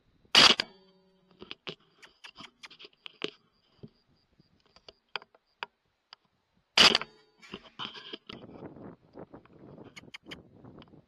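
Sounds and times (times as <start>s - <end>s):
rifle shot: 0.3s - 0.8s
faint scattered clicks: 0.4s - 11.0s.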